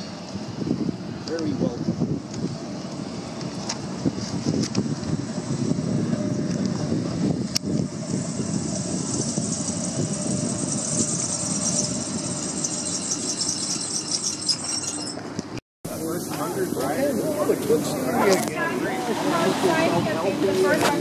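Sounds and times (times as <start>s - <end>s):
streetcar rumbling on rails: 0.0s - 21.0s
streetcar click: 1.2s - 1.6s, 2.2s - 5.2s, 6.4s - 15.6s, 16.2s - 21.0s
high hiss: 15.9s - 20.8s.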